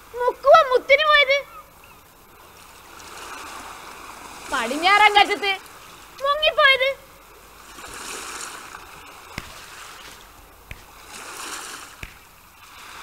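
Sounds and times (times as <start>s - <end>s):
sea waves washing in: 2.2s - 6.2s, 6.8s - 13.0s.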